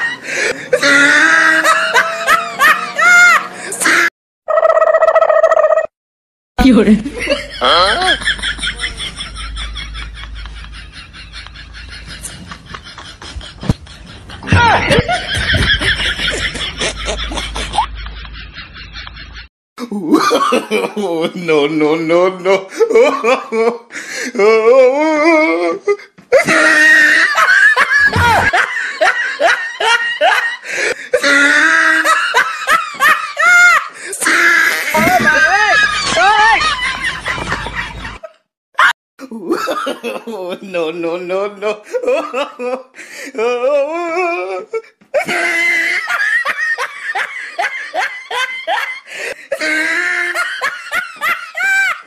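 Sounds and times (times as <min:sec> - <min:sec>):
person laughing loudly: 0:00.0 - 0:05.9, 0:06.7 - 0:21.3, 0:24.4 - 0:40.4, 0:41.9 - 0:52.0.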